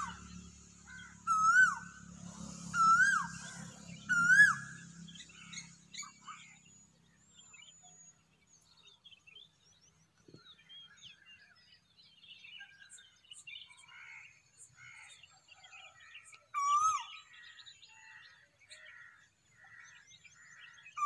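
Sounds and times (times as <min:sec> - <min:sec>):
cuckoo calling: 0:00.9 - 0:02.0, 0:02.7 - 0:04.8, 0:16.5 - 0:17.3
faint small bird chirps: 0:02.6 - 0:21.0.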